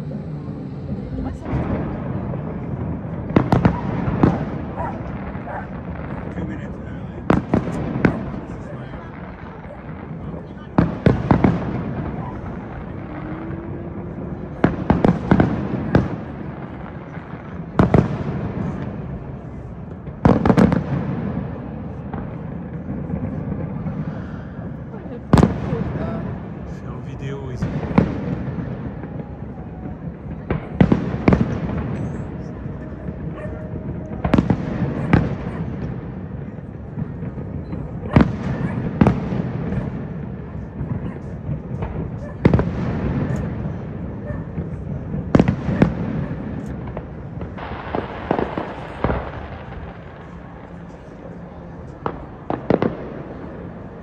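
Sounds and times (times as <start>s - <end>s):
low rumble: 0.0s - 17.4s
background noise: 0.0s - 54.0s
fireworks bangs: 0.0s - 54.0s.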